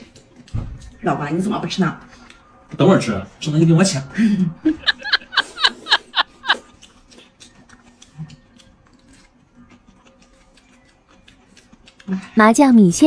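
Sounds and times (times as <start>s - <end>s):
quiet chewing: 0.0s - 1.0s, 2.0s - 2.8s, 4.8s - 12.4s.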